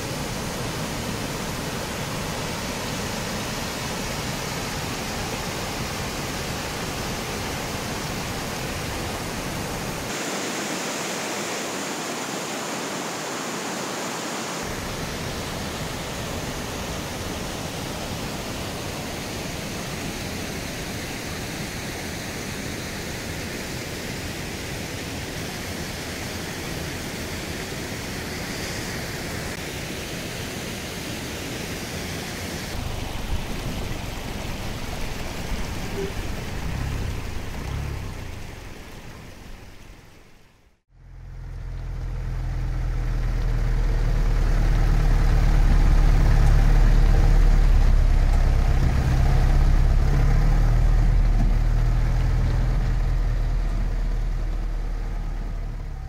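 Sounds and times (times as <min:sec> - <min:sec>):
waterfall rushing: 0:00.0 - 0:40.8, 0:42.8 - 0:56.0
vehicle engine running: 0:32.8 - 0:40.1, 0:40.9 - 0:56.0
low rumble: 0:41.0 - 0:56.0.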